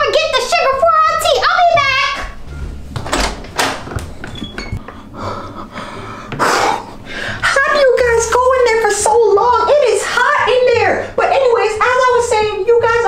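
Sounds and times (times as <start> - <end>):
closet door opening: 1.7 - 4.8.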